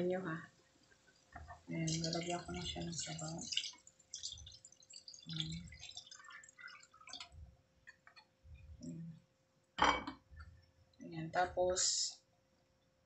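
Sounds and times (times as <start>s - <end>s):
ladle stirring in a pot: 0.9s - 8.7s.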